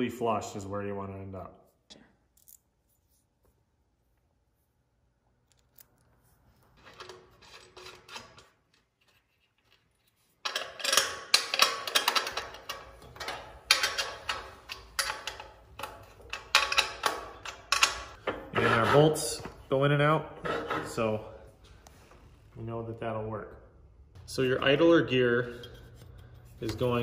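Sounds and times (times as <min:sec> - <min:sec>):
steel bolts clicking on metal plate: 0:10.4 - 0:18.3.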